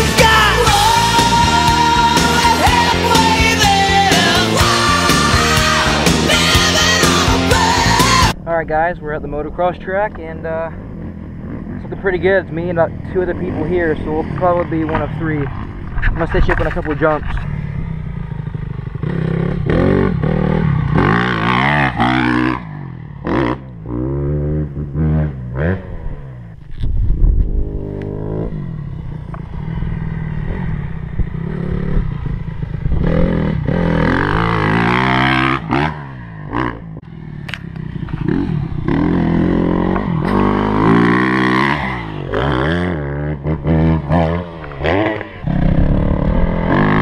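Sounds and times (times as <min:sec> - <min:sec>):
motocross bike engine revving: 0:00.0 - 0:26.6, 0:27.4 - 0:47.0.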